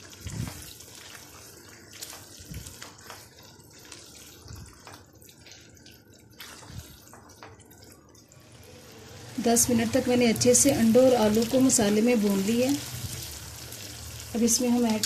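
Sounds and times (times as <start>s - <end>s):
food sizzling in a wok: 8.4s - 15.0s.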